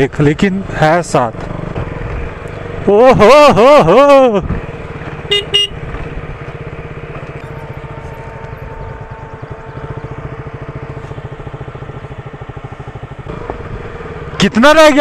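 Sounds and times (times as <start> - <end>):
motorcycle engine pulsing: 0.2 - 15.0
short horn beep: 5.3 - 5.8.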